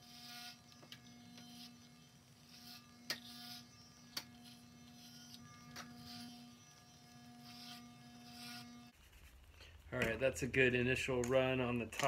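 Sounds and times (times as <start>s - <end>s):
electric hair clippers buzzing: 0.0s - 8.9s.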